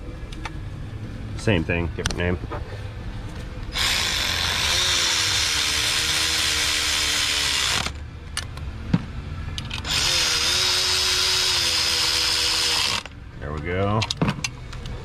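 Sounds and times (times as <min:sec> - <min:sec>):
cordless power tool whine: 0:03.7 - 0:08.0, 0:09.8 - 0:13.1.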